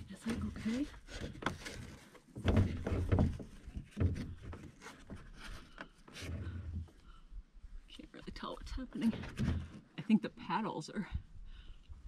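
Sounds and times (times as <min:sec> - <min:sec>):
canoe knocking and scuffing: 0:00.3 - 0:06.4.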